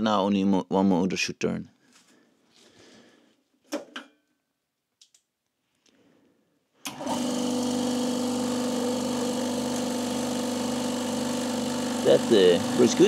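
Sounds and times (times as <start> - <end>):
air compressor motor humming: 6.9 - 13.0.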